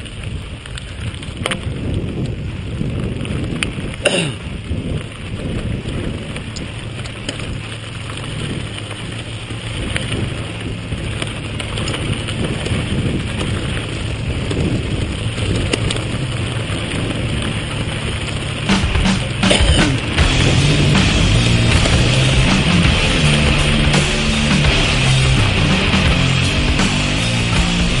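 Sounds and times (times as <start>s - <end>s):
bike tyres rolling on gravel: 0.0s - 28.0s
gravel and bike rattling: 0.0s - 28.0s
wind buffeting microphone: 0.0s - 28.0s.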